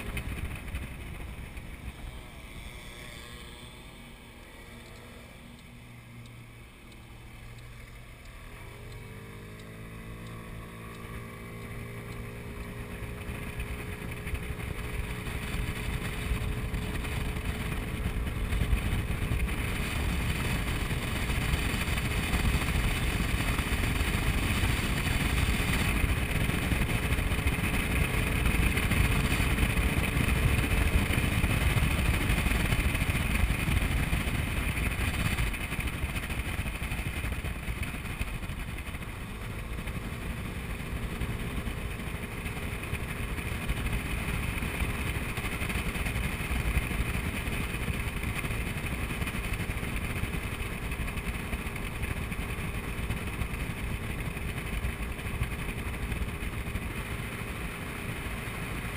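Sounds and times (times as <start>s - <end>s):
scooter engine running: 0.0s - 58.9s
wind noise on microphone: 12.4s - 39.7s.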